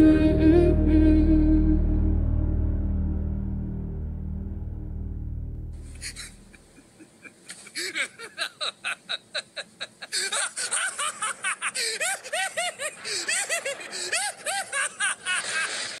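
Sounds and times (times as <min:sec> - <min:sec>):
man laughing: 0:05.9 - 0:16.0.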